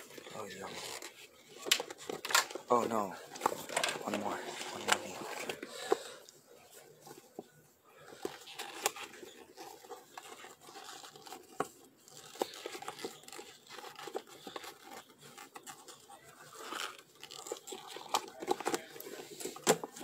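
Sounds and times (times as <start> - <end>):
pet chewing and tearing: 8.1 - 20.0.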